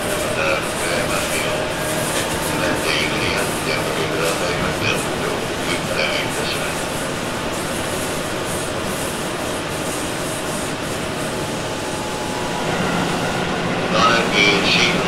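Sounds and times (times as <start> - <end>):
train wheels rumbling on rail: 0.0 - 15.0
person speaking: 0.2 - 6.8, 13.9 - 15.0.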